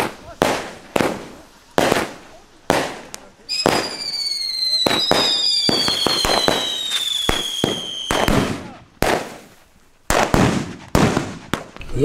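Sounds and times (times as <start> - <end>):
firework cracks: 0.0 - 12.0
firework whistle: 3.5 - 8.7
loud firework bang: 10.1 - 11.8.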